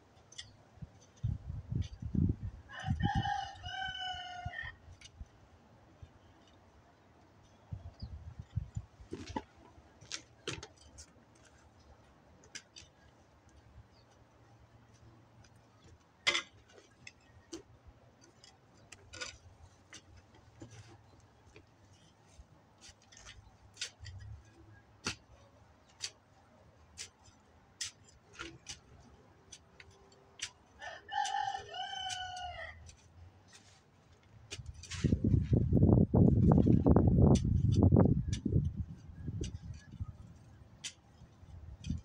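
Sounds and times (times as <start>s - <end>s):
rooster crowing: 2.7s - 4.8s, 30.8s - 32.8s
digging fork scraping soil: 22.0s - 26.2s, 26.9s - 35.6s.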